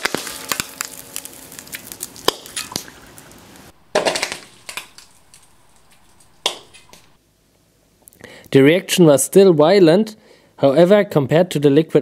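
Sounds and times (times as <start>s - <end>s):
metal reacting with water crackling: 0.0s - 7.2s.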